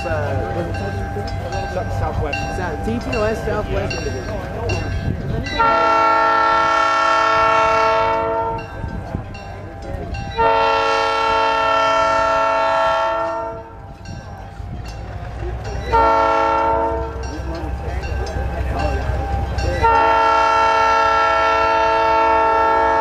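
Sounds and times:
locomotive air horn blasts: 5.6 - 8.8, 10.4 - 13.8, 15.9 - 17.2, 19.8 - 23.0.

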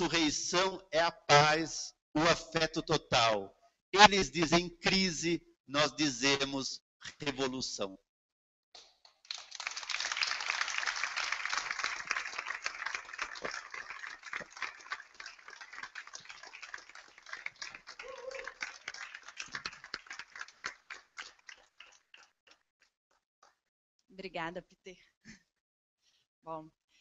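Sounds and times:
audience applauding: 9.2 - 22.5.

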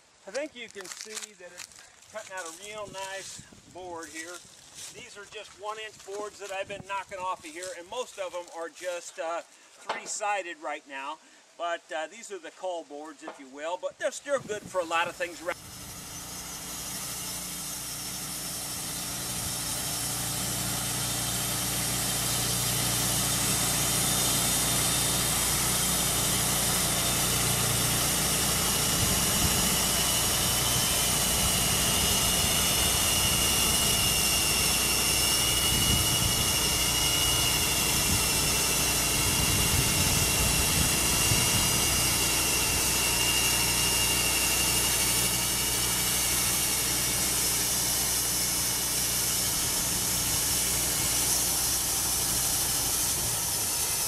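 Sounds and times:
band blade sawing log: 0.3 - 9.0, 14.7 - 54.0
high steady whine: 14.3 - 54.0
small engine running: 14.9 - 54.0.

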